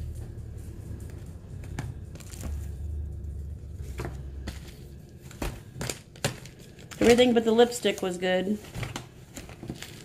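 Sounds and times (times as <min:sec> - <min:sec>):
low handling rumble: 0:00.0 - 0:06.1.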